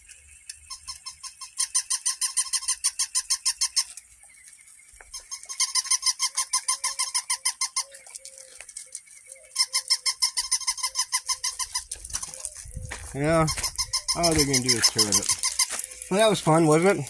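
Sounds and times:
toy puppy squeaky chirps: 0.6 - 3.9, 5.1 - 8.0, 9.5 - 12.6, 13.4 - 16.2.

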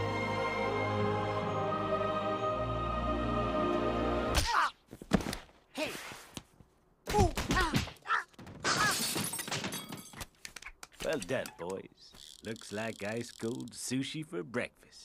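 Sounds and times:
orchestral logo music: 0.0 - 4.4
squeaky cartoon grunts and yelps: 4.4 - 4.8, 7.1 - 9.1.

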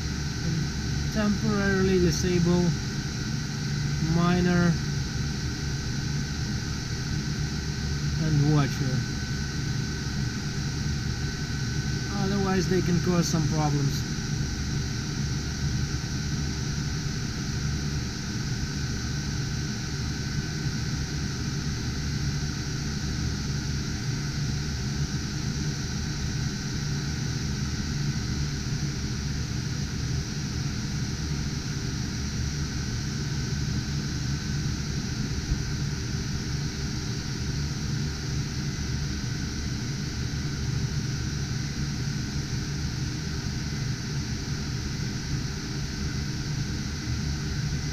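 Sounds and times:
low hum: 0.0 - 17.5
cooling fans whirring: 0.0 - 47.9.

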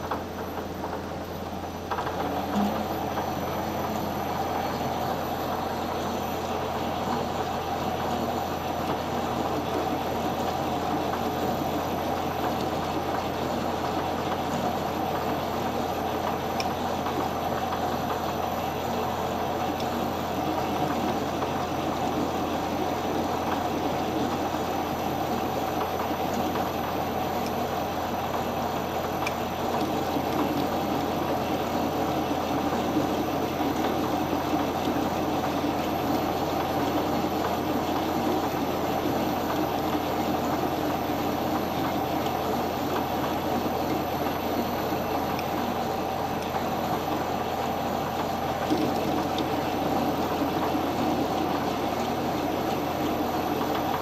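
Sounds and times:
metal lathe drone: 2.3 - 16.4.

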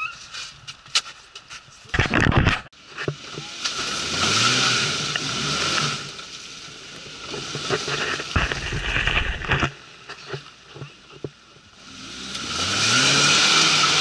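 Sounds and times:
wheels spinning in mud: 2.0 - 14.0
car engine revving: 3.0 - 14.0
loud rustle: 5.6 - 11.0.

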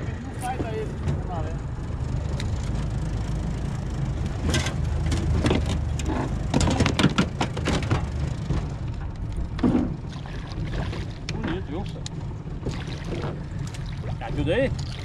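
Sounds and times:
fish splashing at surface: 10.1 - 11.3, 12.6 - 14.2.

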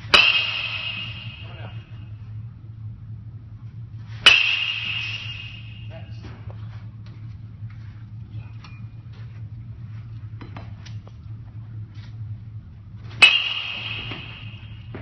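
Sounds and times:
metal bat hitting ball: 0.0 - 1.7, 4.2 - 5.9, 13.2 - 15.0
steady low hum: 0.0 - 15.0.

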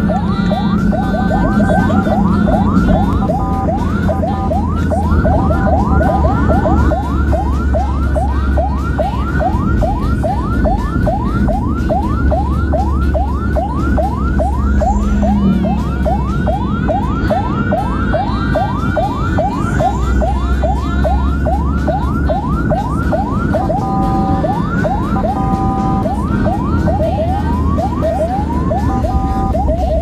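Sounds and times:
ambulance siren yelping: 0.0 - 30.0
engine and road rumble: 0.0 - 30.0.

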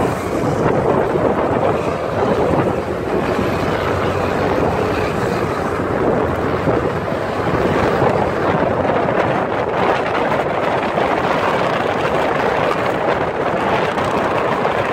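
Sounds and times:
vehicle interior driving noise: 0.0 - 14.9.

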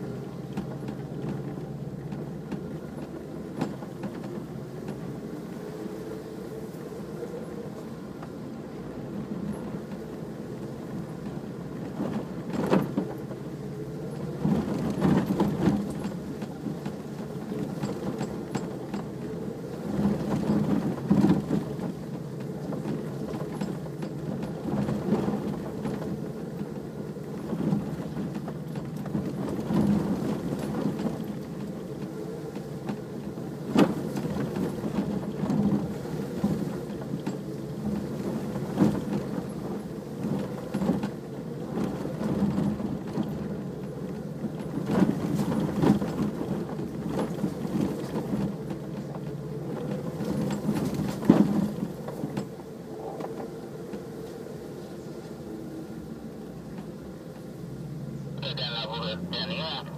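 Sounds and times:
vehicle engine running: 58.2 - 59.9.

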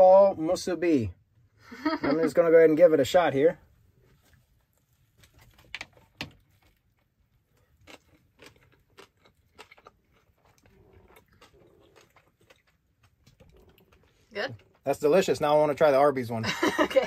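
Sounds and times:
wet mouth clicks chewing: 7.6 - 14.8.

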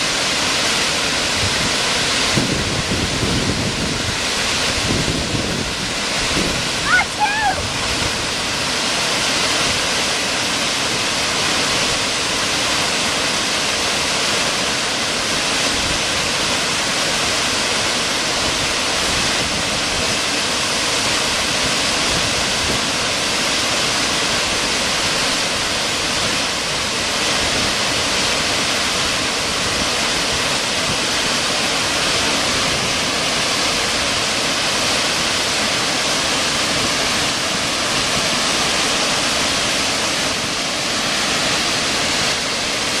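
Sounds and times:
waterfall rushing: 0.0 - 43.0.

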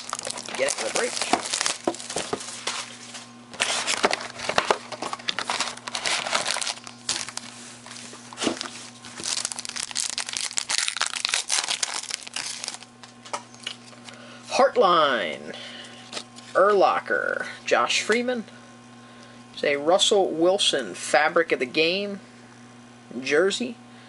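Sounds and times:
card packaging crinkling and tearing: 0.0 - 13.2.

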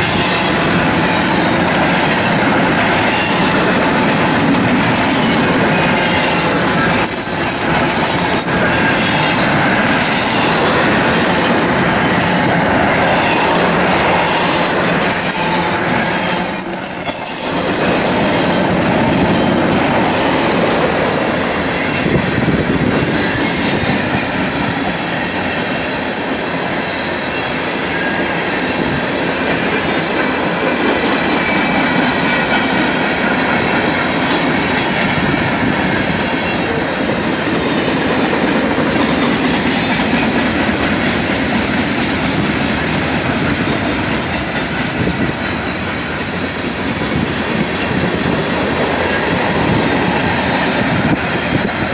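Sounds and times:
high-pitched wheel squeal: 0.0 - 20.8
steel train wheels rumbling on rails: 0.0 - 51.9.

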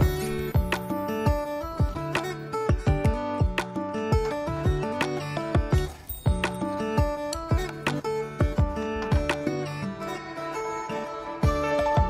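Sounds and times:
melodic tune over drum beat: 0.0 - 9.5.

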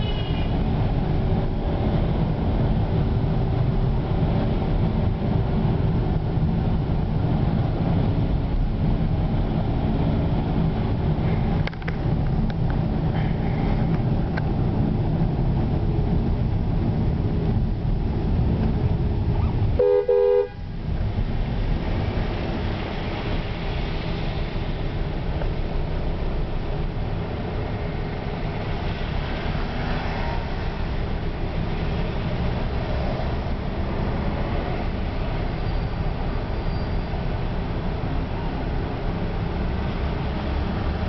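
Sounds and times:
car horn honking: 0.0 - 0.5, 19.8 - 20.7
car engine rumble: 0.0 - 41.0
tyres on wet road: 0.0 - 41.0.

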